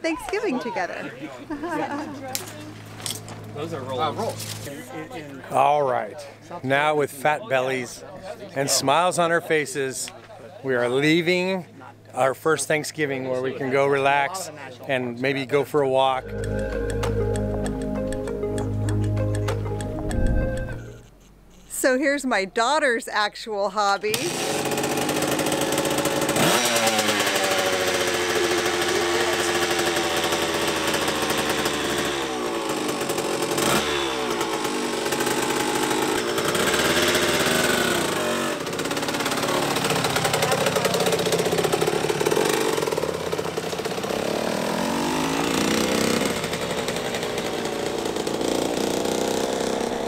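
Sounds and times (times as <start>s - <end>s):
dirt bike engine revving: 24.2s - 50.0s.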